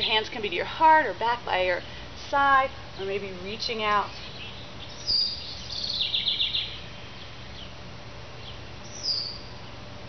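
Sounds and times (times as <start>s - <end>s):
birds singing: 3.9s - 9.8s.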